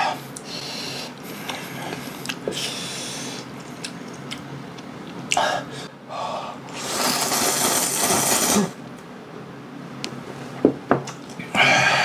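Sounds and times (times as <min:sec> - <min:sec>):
person slurping noodles: 0:06.7 - 0:08.8.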